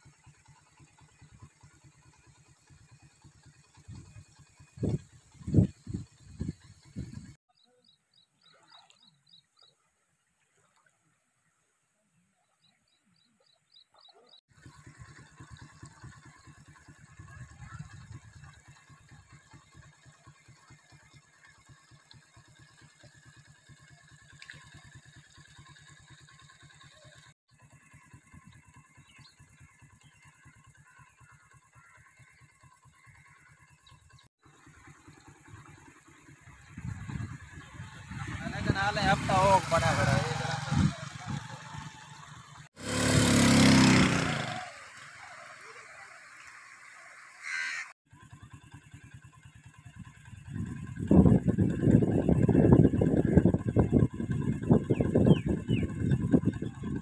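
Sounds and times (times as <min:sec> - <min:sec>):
rapid low fluttering: 0:00.0 - 0:07.4, 0:13.0 - 0:57.0
floodwater rushing: 0:37.9 - 0:47.5
crow cawing: 0:47.4 - 0:47.9.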